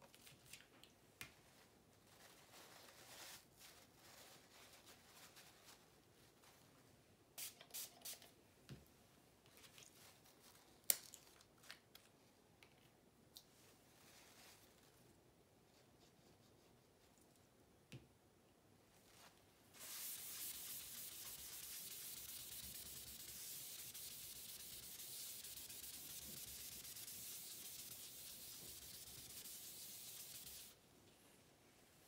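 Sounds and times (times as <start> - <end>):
tissue rubbing on paper: 2.0 - 6.7, 19.0 - 30.8.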